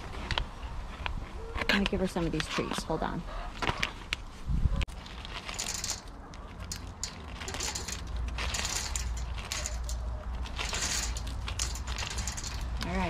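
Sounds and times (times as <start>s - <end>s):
straw rustling: 3.8s - 13.0s.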